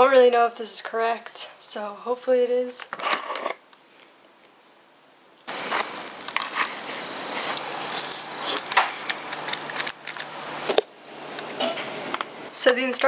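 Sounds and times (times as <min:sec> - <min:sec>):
foil and paper crinkling: 0:05.5 - 0:10.9.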